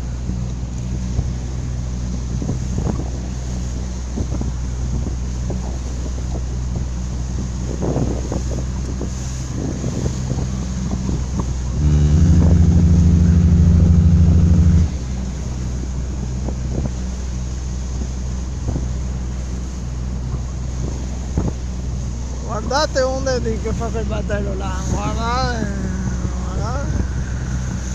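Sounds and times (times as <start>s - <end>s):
motorboat engine running: 0.0s - 27.9s
water slapping against hull: 0.0s - 27.9s
wind on microphone: 0.0s - 27.9s
loud low horn blast: 11.6s - 16.0s.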